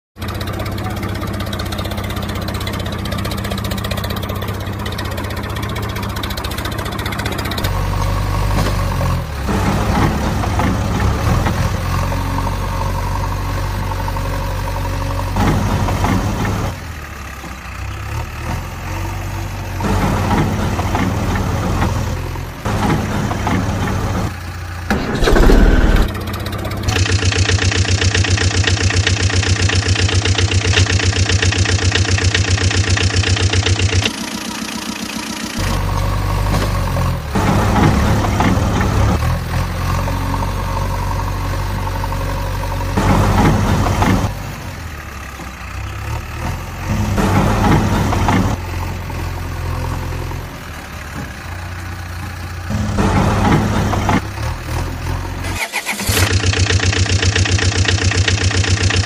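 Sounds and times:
engine idling and revving: 0.2s - 59.0s
loud engine burst: 24.9s - 28.2s, 55.4s - 59.0s.

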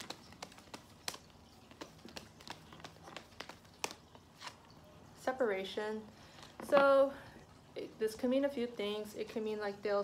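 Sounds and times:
cards being shuffled: 0.0s - 4.7s.

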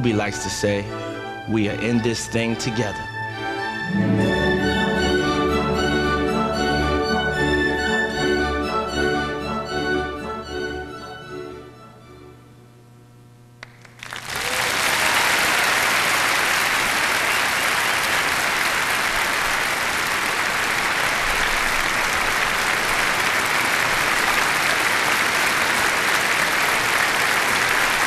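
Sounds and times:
crowd applauding: 13.6s - 28.0s.

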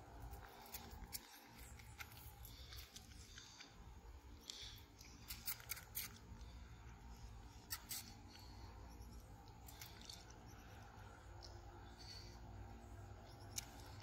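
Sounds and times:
monkey sucking from syringe: 4.4s - 6.6s, 7.6s - 8.5s.

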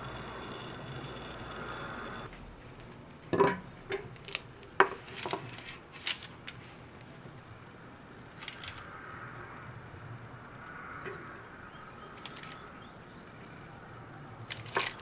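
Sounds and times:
parchment paper crinkle: 4.2s - 6.8s, 8.3s - 8.8s, 14.5s - 15.0s.

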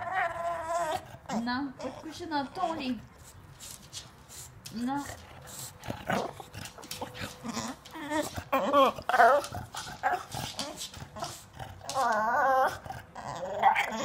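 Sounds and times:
dog whining and grumbling: 0.0s - 3.0s, 6.0s - 14.0s.

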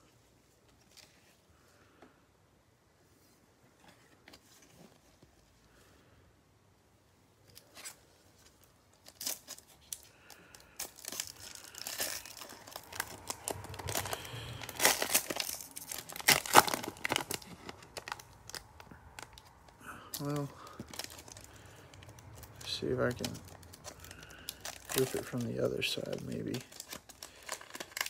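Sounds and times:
foil wrapper crinkling and tearing: 7.5s - 28.0s.

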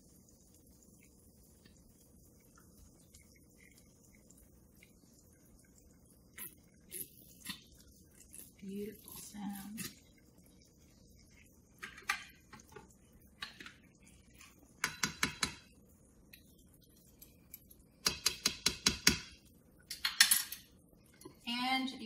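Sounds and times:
metal utensils clinking: 19.9s - 20.8s.

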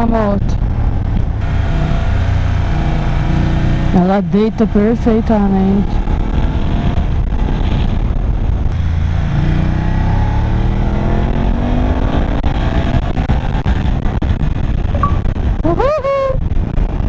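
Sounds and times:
motorcycle engine accelerating: 0.6s - 15.6s
wind rush: 5.6s - 17.0s.

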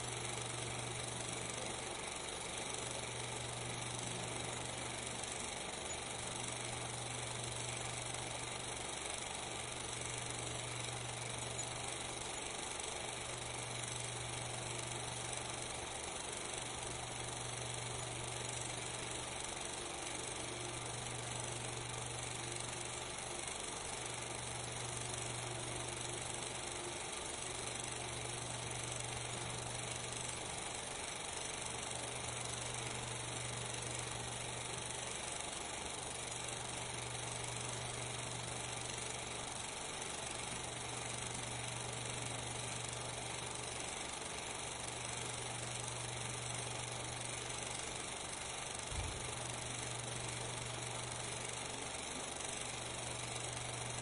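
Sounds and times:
steady hiss: 0.0s - 54.0s.

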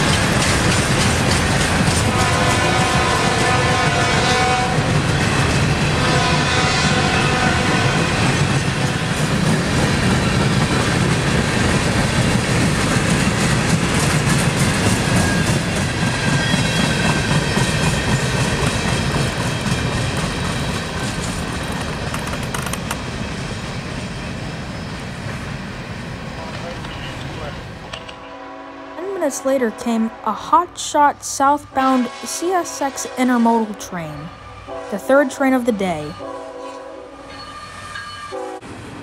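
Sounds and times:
train wheels clattering over rail joints: 0.0s - 3.0s, 8.3s - 23.6s
train wheel squeal: 14.3s - 25.6s, 36.1s - 38.6s.

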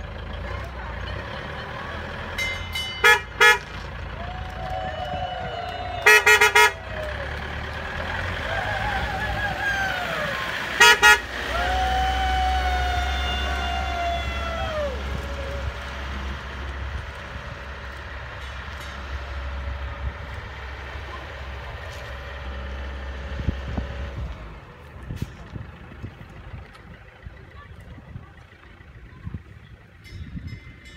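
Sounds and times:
truck engine running: 0.0s - 30.9s
truck horn toots: 2.9s - 3.9s, 6.0s - 7.0s, 10.7s - 11.5s.

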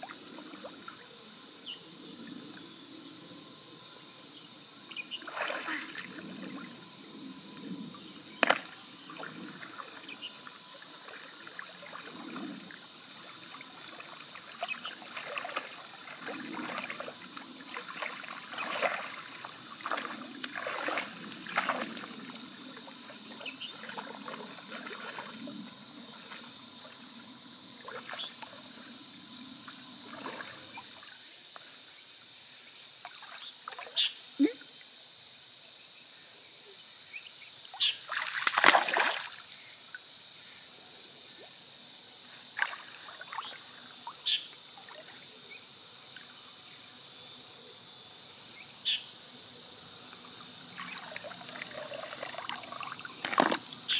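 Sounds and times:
high insect buzz: 0.0s - 53.9s
water sloshing and splashing: 5.2s - 6.8s, 8.4s - 26.5s, 27.8s - 28.6s, 30.0s - 31.1s, 38.1s - 40.0s, 42.6s - 43.7s, 50.6s - 53.9s.

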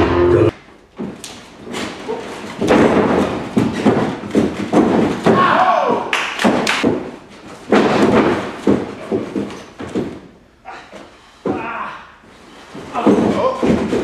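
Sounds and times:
bodies thudding on ring canvas: 6.5s - 10.4s.

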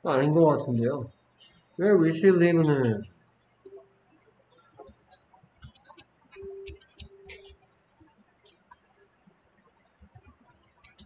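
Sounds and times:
computer keyboard typing: 4.6s - 11.0s.

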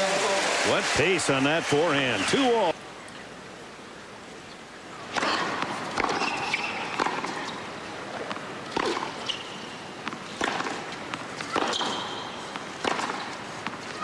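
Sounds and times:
racquets hitting tennis ball: 5.1s - 14.0s
shoe squeaks on court: 6.1s - 7.6s, 8.8s - 9.8s, 11.4s - 12.5s.

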